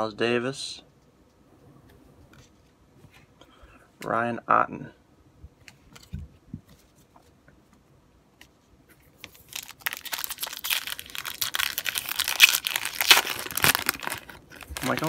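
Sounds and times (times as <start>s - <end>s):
foil wrapper tearing and crinkling: 9.2s - 15.0s.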